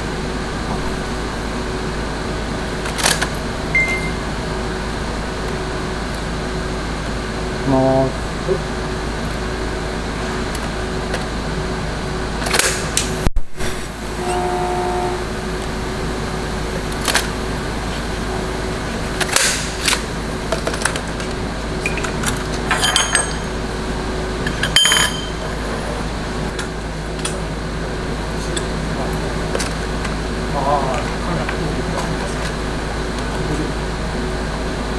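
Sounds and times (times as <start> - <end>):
steady machine hum: 0.0 - 34.9
steel rods clinking: 22.7 - 23.6.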